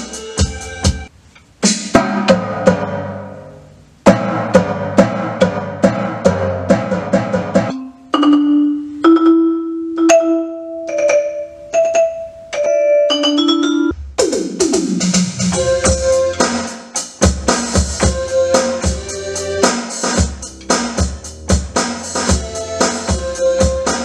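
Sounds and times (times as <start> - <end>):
electronic drum pads struck: 0.0 - 7.8, 13.9 - 24.0
long held synth notes: 15.5 - 16.7, 17.8 - 19.7.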